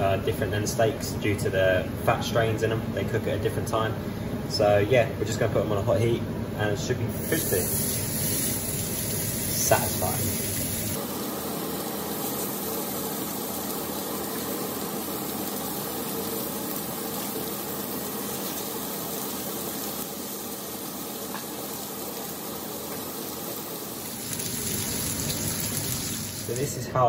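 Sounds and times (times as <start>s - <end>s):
burgers sizzling in pan: 7.1s - 26.7s.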